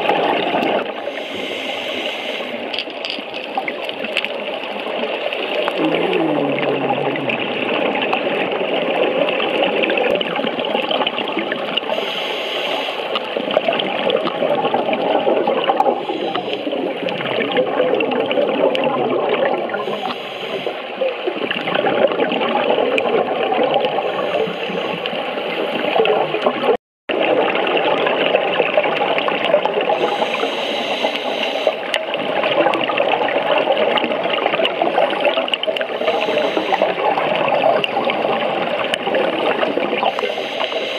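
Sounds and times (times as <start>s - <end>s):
underwater regulator bubbles: 0.0s - 40.9s.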